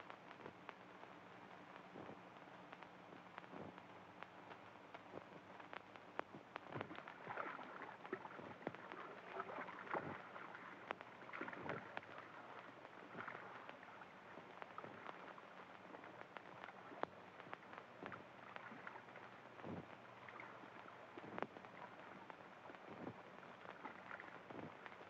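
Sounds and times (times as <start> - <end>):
low hum and hiss: 0.0 - 25.0
water splashing and sloshing: 6.6 - 25.0.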